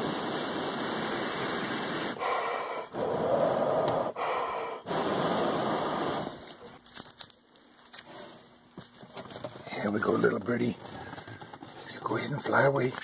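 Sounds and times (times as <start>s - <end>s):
man blowing breath: 0.0s - 6.7s.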